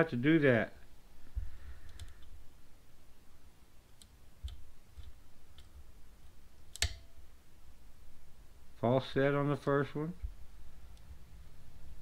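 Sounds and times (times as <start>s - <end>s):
lock pick clicks: 6.7s - 7.1s.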